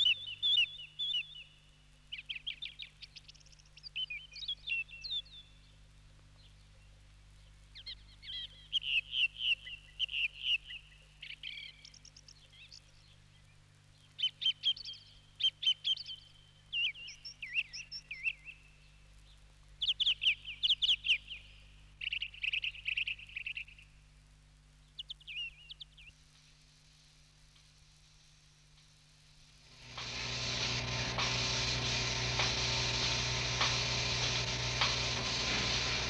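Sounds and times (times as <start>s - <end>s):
songbird singing trills: 0.0s - 5.8s, 7.7s - 23.9s, 24.9s - 26.2s
faint low hum: 0.0s - 36.0s.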